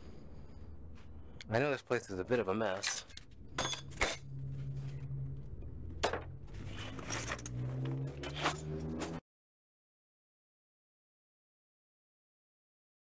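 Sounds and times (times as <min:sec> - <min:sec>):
steady low hum: 0:00.0 - 0:07.3.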